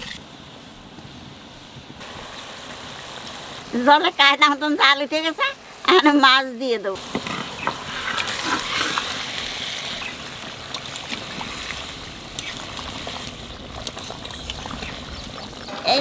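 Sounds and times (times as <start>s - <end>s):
curry boiling and bubbling: 7.0s - 16.0s.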